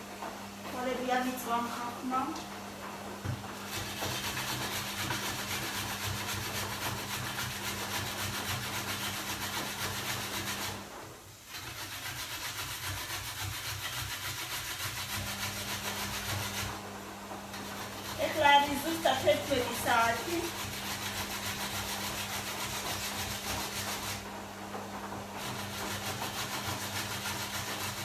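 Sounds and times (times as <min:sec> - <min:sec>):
food rasping on box grater: 0:03.6 - 0:10.8, 0:11.5 - 0:16.8, 0:17.5 - 0:24.2, 0:25.4 - 0:28.0.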